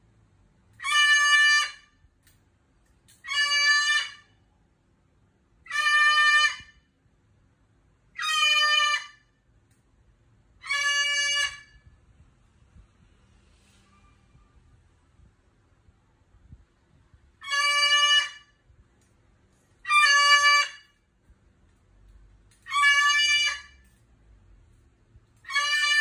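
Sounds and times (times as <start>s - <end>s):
cockatoo screaming: 0.8s - 1.8s, 3.2s - 4.2s, 5.7s - 6.7s, 8.2s - 9.2s, 10.6s - 11.7s, 17.4s - 18.5s, 19.8s - 20.9s, 22.6s - 23.8s, 25.4s - 26.0s.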